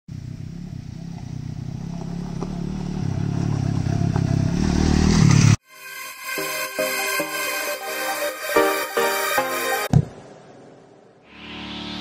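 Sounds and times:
motorcycle engine running: 0.1s - 5.6s.

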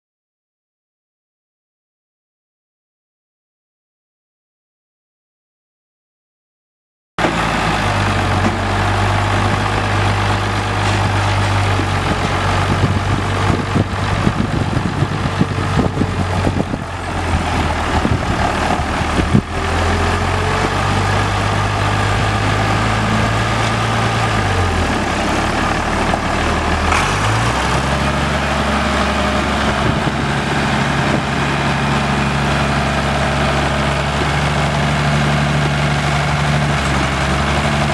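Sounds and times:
tractor diesel engine running: 7.2s - 37.9s.

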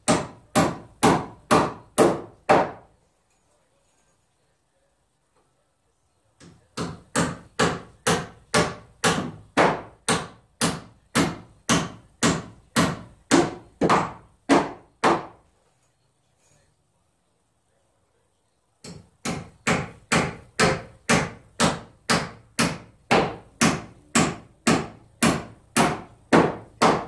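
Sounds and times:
hammer striking wood: 0.0s - 2.9s, 6.4s - 15.4s, 18.8s - 27.0s.

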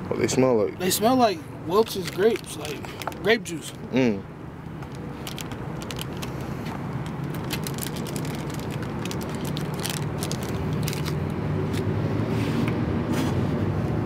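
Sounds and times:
low steady rumble: 0.0s - 12.9s
snack packaging crackling: 1.8s - 3.2s, 4.7s - 11.9s.

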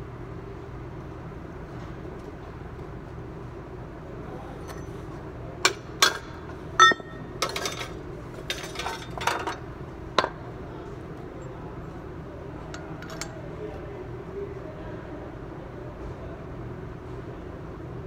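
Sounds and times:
steady background hum: 0.0s - 18.0s
metal clanks and clinks: 5.7s - 10.4s, 12.7s - 13.4s
metal rattling and scraping: 6.9s - 9.7s.

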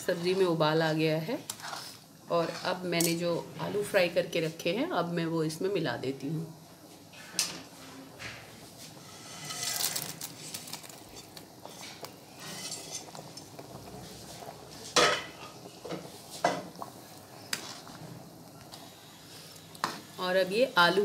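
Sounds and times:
metal spoon scraping a pot: 1.5s - 3.2s, 9.0s - 13.2s.

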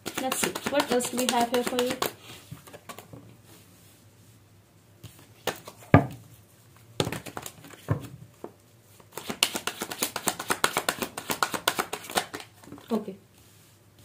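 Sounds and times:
cards tapping and slapping: 0.0s - 3.1s, 5.0s - 6.2s, 7.0s - 8.1s, 9.0s - 12.9s
deck of cards shuffling: 0.0s - 3.1s, 7.0s - 7.9s, 9.0s - 13.6s.

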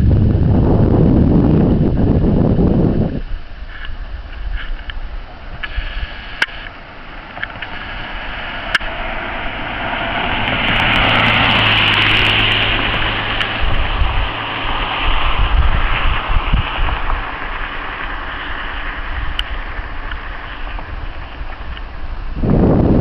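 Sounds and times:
wind on microphone: 0.0s - 23.0s
car driving past: 6.7s - 22.1s.

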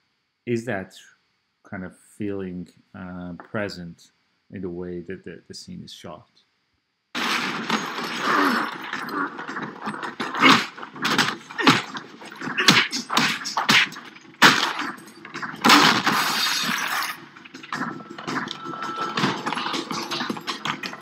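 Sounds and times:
fight blows and thuds: 7.2s - 18.4s
glass breaking: 7.2s - 21.0s.

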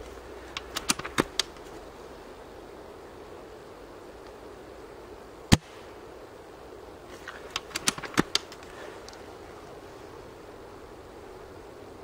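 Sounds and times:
airsoft rifle shot crack: 5.5s - 5.8s
light clicks: 7.2s - 9.2s.

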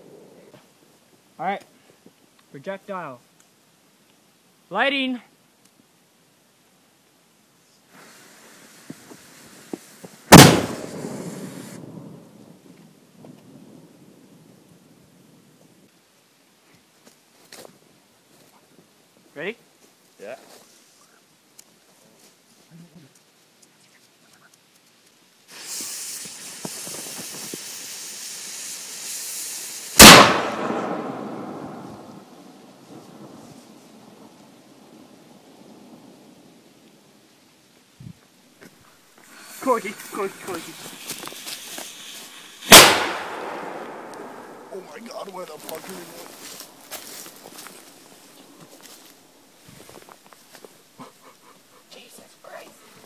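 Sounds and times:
steady hiss with faint crackles: 0.0s - 53.0s
fuse hissing and sputtering: 7.9s - 11.8s, 25.5s - 30.0s, 39.2s - 42.7s
cannon boom with rumbling echo: 10.3s - 12.3s, 30.0s - 32.3s, 42.7s - 44.7s.

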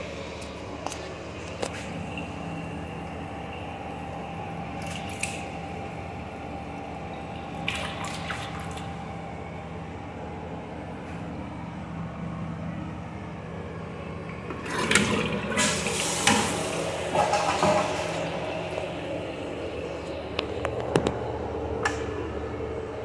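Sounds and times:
water trickling in toilet cistern: 0.0s - 9.7s.

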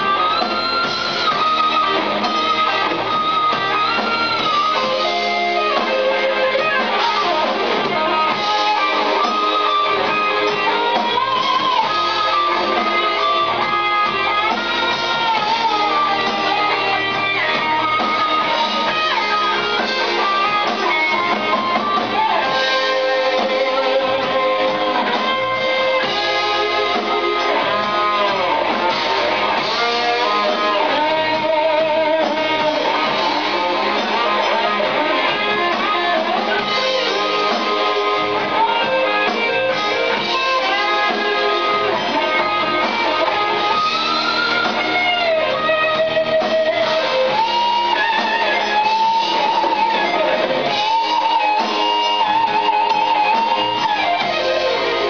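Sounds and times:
electric guitar solo: 0.0s - 55.0s
live band playing: 0.0s - 55.0s.

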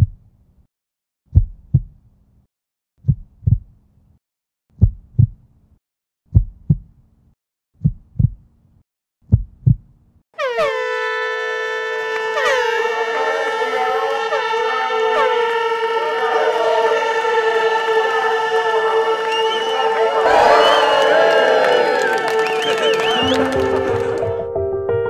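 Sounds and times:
heartbeat double beats: 0.0s - 0.2s, 1.3s - 2.0s, 3.0s - 3.7s, 4.8s - 5.4s, 6.3s - 7.0s, 7.8s - 8.5s, 9.2s - 10.0s
air horn blast: 10.4s - 24.5s.

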